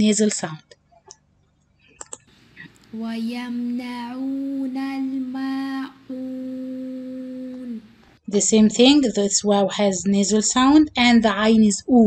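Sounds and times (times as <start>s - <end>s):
person chanting: 2.9s - 8.0s.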